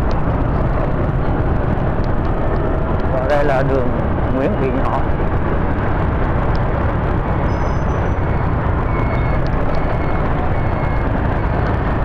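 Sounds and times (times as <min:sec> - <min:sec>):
motorbike traffic drone: 0:00.0 - 0:12.0.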